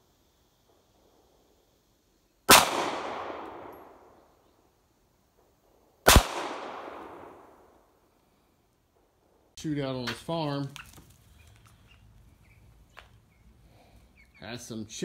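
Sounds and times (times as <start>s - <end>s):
gunshots with long echo: 2.5s - 4.3s, 5.4s - 8.0s.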